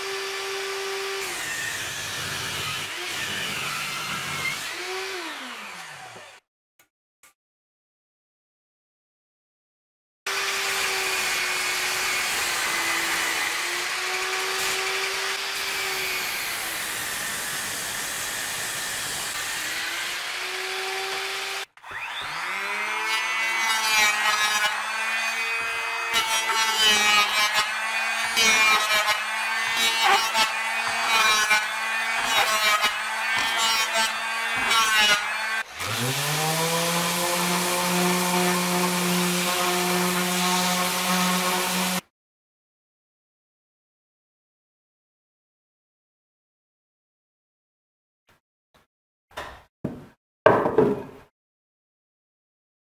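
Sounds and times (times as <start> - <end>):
electric hand planer: 0.0 - 6.4, 10.3 - 42.0
table saw ripping wood: 0.0 - 6.4, 10.3 - 42.0
random orbital sander: 10.4 - 42.0.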